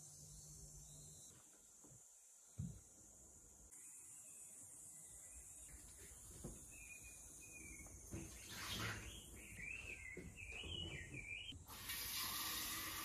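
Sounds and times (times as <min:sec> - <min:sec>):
water running from tap: 0:11.7 - 0:13.0.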